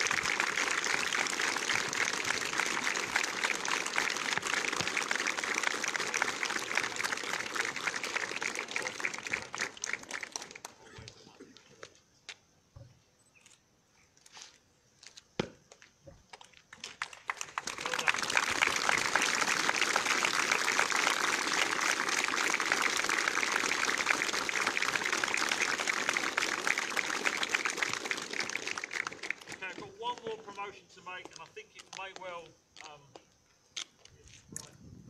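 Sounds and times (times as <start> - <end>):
large group clapping: 0.0 - 11.2, 16.7 - 30.2.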